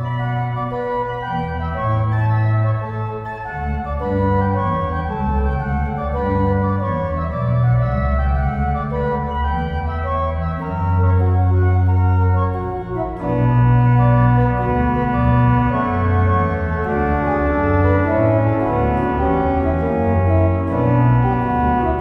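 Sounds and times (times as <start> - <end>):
pipe organ playing: 0.0 - 22.0.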